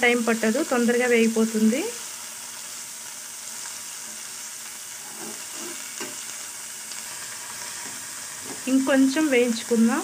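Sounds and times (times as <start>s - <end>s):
leaves sizzling in hot oil: 0.0s - 10.0s
spatula scraping: 5.0s - 6.2s.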